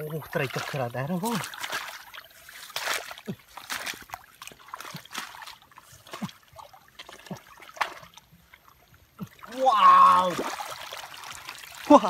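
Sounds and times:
gurgling plops: 0.0s - 12.0s
muddy water trickling: 0.0s - 12.0s
wet mud slaps: 0.4s - 6.4s.

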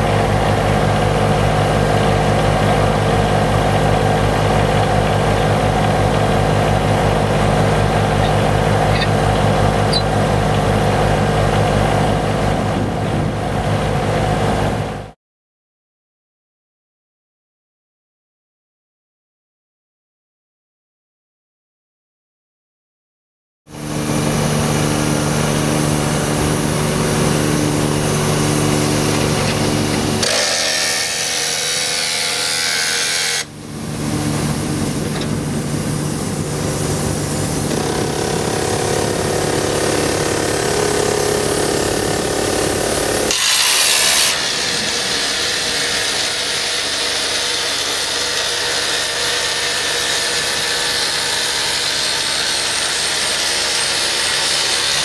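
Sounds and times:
excavator engine humming: 0.0s - 15.1s, 23.7s - 30.4s, 33.4s - 43.3s
rock drill grinding into stone: 29.1s - 31.9s.

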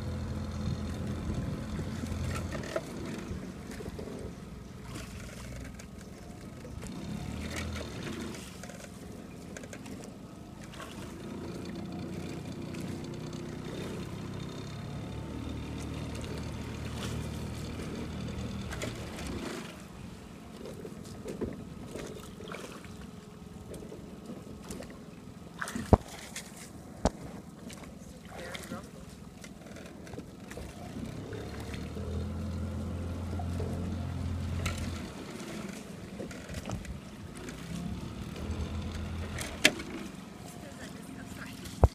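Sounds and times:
small boat motor running: 0.0s - 41.9s
water noise: 0.0s - 41.9s
wind on microphone: 0.5s - 3.4s.

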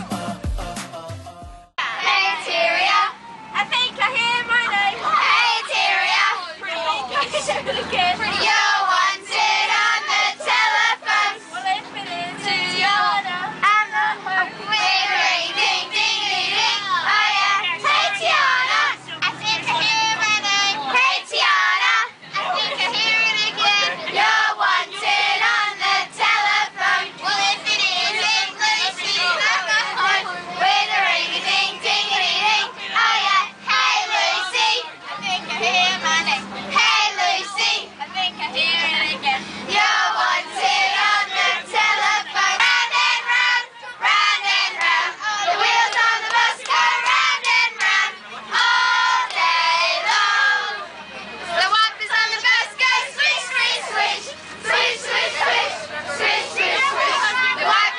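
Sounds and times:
children singing: 13.9s - 34.8s, 39.8s - 50.8s, 52.0s - 57.9s.

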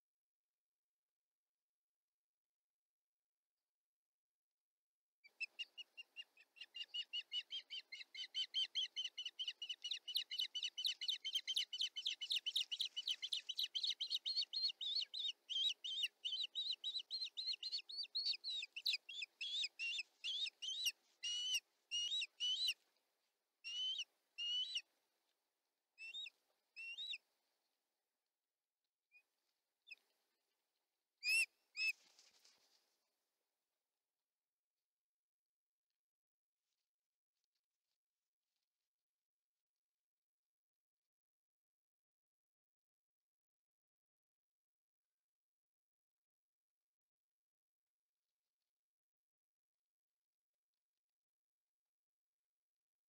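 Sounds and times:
osprey calling: 5.4s - 22.8s.

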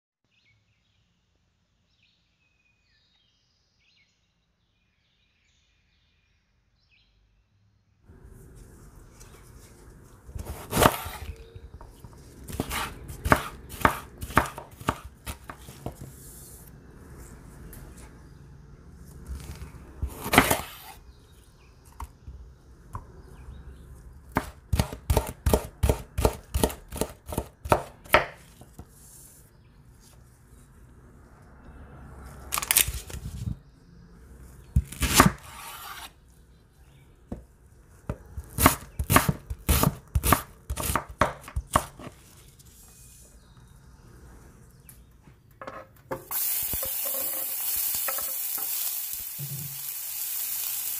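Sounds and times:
knife chopping on wooden board: 10.3s - 16.1s, 20.0s - 21.0s, 24.3s - 28.8s, 38.1s - 42.2s
knife slicing on wooden board: 10.3s - 16.4s, 20.0s - 21.0s, 34.8s - 36.2s.

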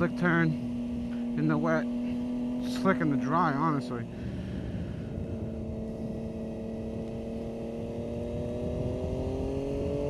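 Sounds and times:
motorcycle engine running: 0.0s - 10.0s
wind noise: 4.0s - 10.0s.

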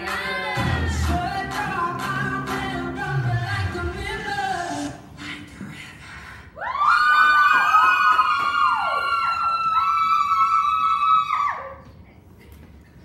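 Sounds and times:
electronic dance music: 0.0s - 5.2s.

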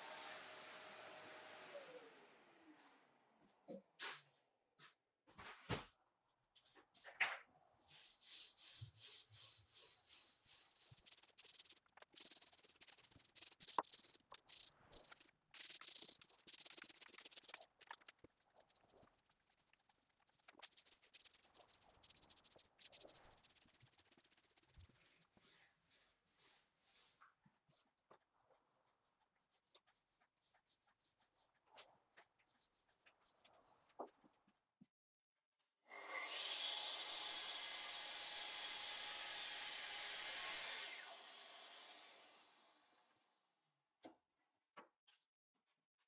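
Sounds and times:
paint roller swishing: 7.9s - 34.0s.

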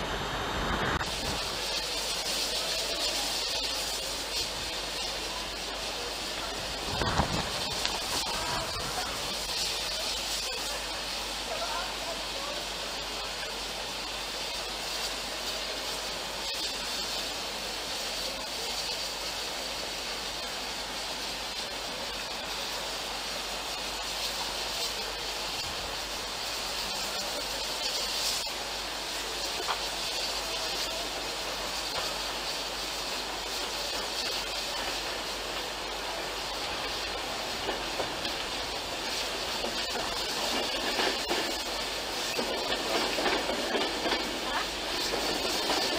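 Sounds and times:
passenger train running: 0.0s - 45.9s
wind on microphone: 6.8s - 9.1s.

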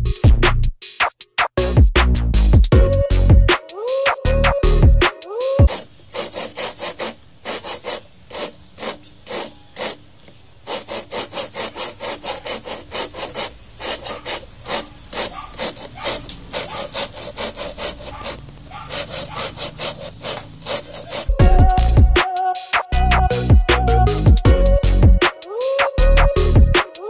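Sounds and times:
gritty rasping of valve lapping: 5.7s - 22.2s.

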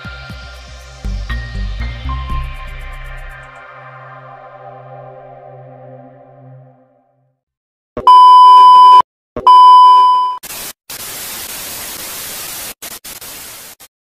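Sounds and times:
loud steady beeps: 8.1s - 10.4s
tv static hiss: 10.4s - 13.9s.

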